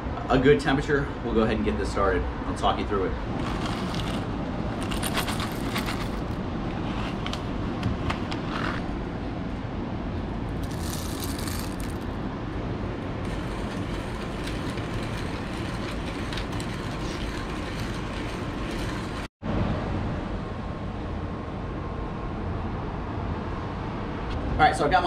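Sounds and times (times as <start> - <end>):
wind: 0.0 - 25.0
traffic rumble: 0.9 - 25.0
hand coffee grinder crunching beans: 3.4 - 6.4, 10.6 - 12.0, 13.3 - 19.3.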